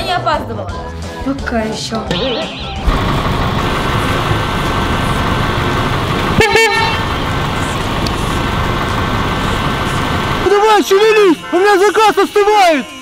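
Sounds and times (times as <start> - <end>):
car horn toot: 2.1 - 2.9, 6.3 - 7.2
cars idling in traffic: 2.8 - 11.6.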